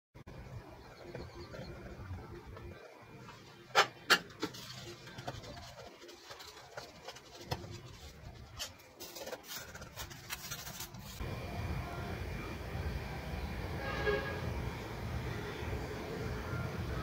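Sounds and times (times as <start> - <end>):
tools clicking and scratching: 3.8 - 11.2.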